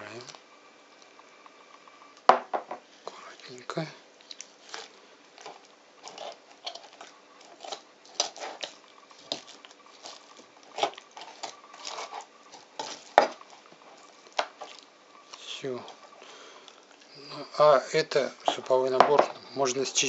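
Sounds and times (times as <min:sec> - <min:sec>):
knife scraping on cutting board: 0:04.6 - 0:13.6.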